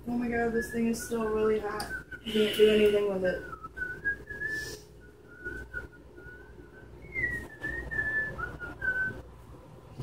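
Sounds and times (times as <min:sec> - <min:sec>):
person whistling a tune: 0:03.5 - 0:09.2.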